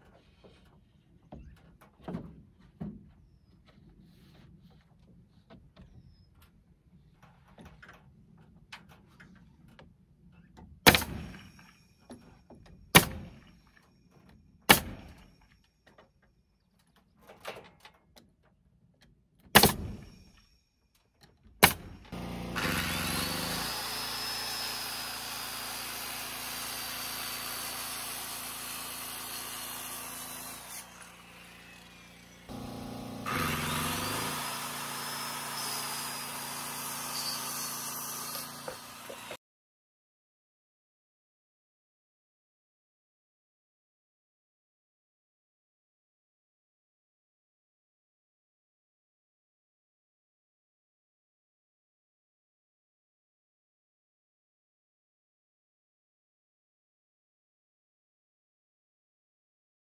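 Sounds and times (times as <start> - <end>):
nail gun shots: 10.9 - 11.4, 13.0 - 13.4, 14.7 - 15.2, 19.5 - 20.2, 21.6 - 23.6
circular saw cutting board: 21.6 - 39.4.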